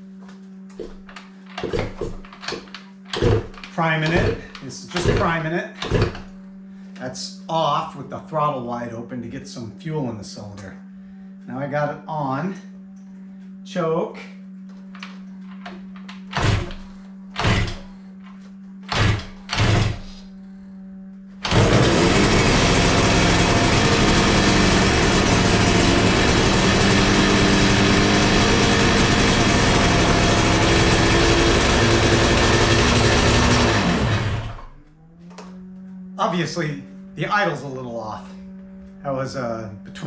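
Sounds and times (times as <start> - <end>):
motorcycle engine fast idle: 21.5 - 34.2.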